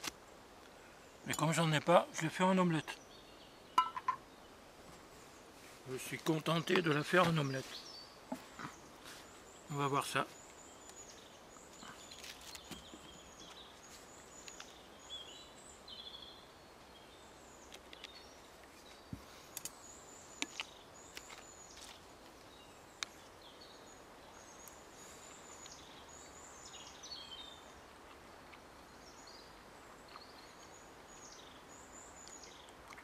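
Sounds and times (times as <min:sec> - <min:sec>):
songbirds singing: 0:00.2 - 0:33.0.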